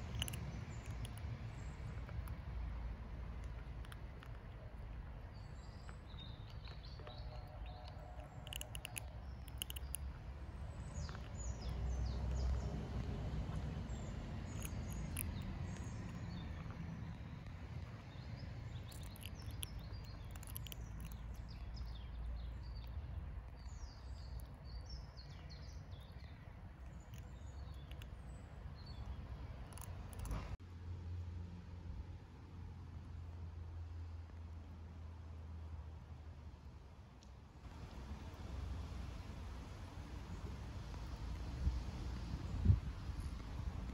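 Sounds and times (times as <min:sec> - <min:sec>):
kittens crunching dry kibble: 0:00.0 - 0:30.6
low background rumble: 0:00.0 - 0:30.6
small birds chirping: 0:00.0 - 0:30.6, 0:37.7 - 0:43.9.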